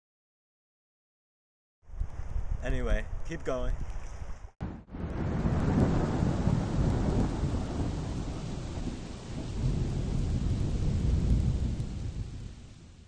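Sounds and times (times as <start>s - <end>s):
rain hissing: 4.6s - 13.0s
thunder rumbling: 4.6s - 13.0s.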